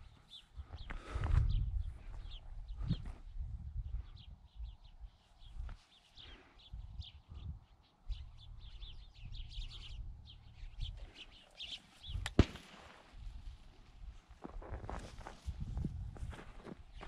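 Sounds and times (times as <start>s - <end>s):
small birds chirping: 0.0s - 17.0s
rustling through dry reeds: 11.0s - 17.0s
sharp crack: 12.1s - 13.4s.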